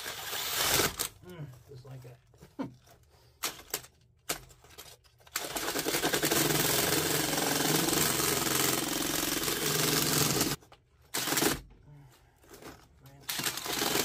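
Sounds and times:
power drill auger grinding soil: 5.4s - 10.6s, 13.3s - 14.0s.

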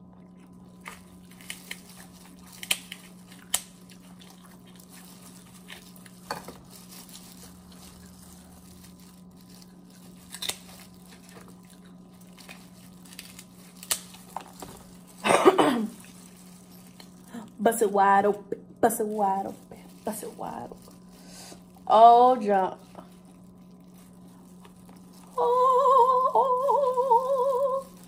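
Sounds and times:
steady low hum: 0.0s - 28.0s
plastic gloves crinkling: 0.4s - 28.0s
crab shell cracking: 0.8s - 15.2s, 15.9s - 17.3s, 23.0s - 25.4s.

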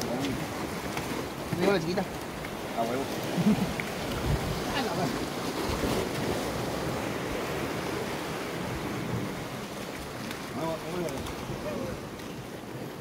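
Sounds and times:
sea surf on rocky shoreline: 0.0s - 13.0s
wind buffeting microphone: 2.5s - 12.5s.

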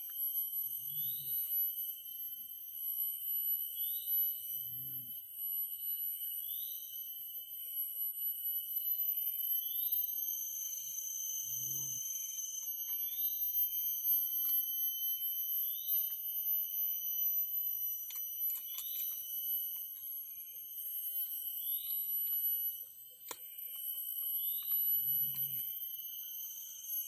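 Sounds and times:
insects buzzing: 0.0s - 27.0s.

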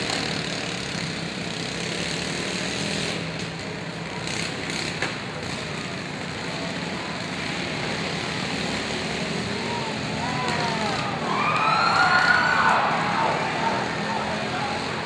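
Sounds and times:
riding lawn mower engines: 0.0s - 15.0s.

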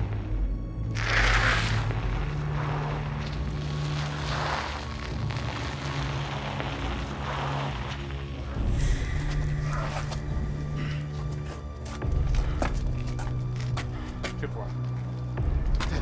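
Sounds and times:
whooshes: 0.9s - 10.8s.

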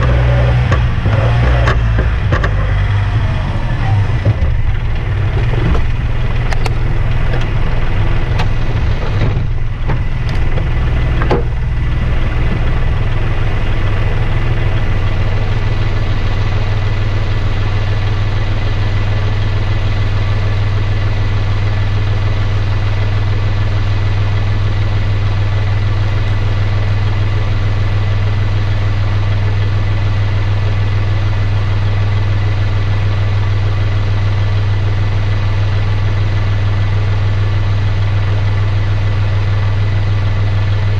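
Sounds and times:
engine knocks: 0.0s - 20.8s
diesel engine idling: 0.0s - 40.9s.

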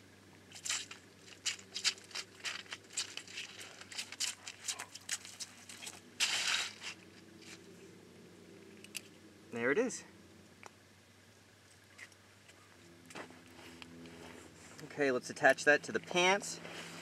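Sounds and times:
clicks and crackles on ice: 0.5s - 7.0s
dog paws on crusty ice: 0.5s - 7.6s
scraping rustle: 0.5s - 7.8s, 16.6s - 17.0s.

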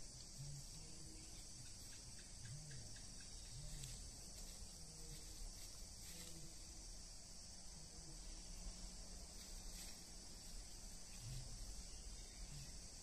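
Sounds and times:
faint low hums: 0.0s - 13.0s
insect chorus: 0.0s - 13.0s.

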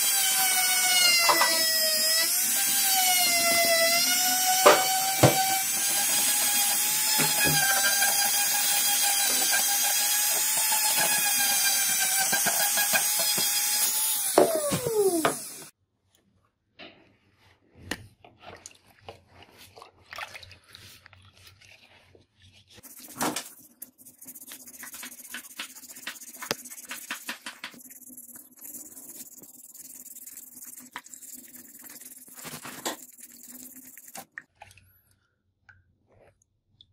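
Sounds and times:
sponge scrubbing knife blade: 22.7s - 34.4s.

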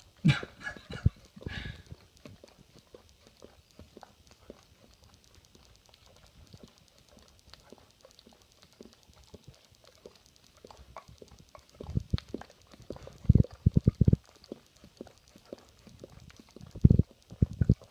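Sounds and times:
dog licking and lip smacking: 0.0s - 17.9s.

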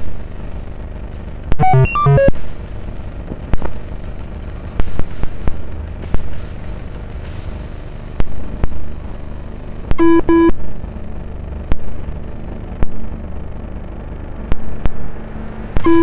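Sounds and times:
steady low rumble: 0.0s - 16.0s
electronic buzzer beeps: 1.6s - 2.4s, 10.0s - 10.6s, 15.8s - 16.0s.

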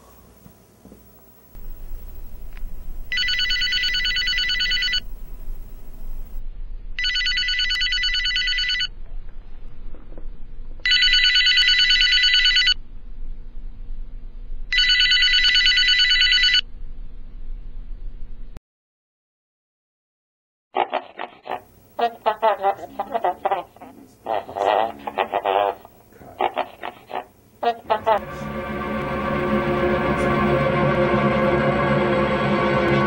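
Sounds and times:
low steady hum: 0.0s - 7.0s, 12.8s - 14.8s, 21.6s - 33.0s
telephone ringing: 1.6s - 6.4s, 7.0s - 8.9s, 10.8s - 12.8s, 14.7s - 16.6s.

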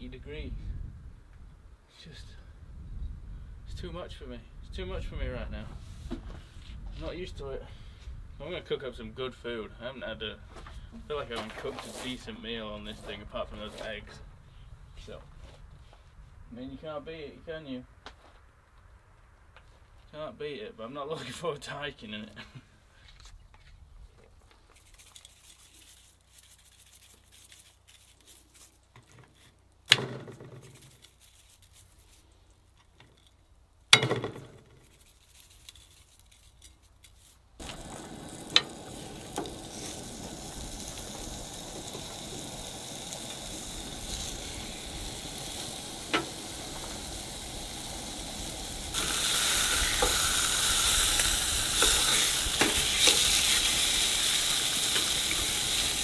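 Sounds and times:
fat sizzling in a frying pan: 37.6s - 56.0s.

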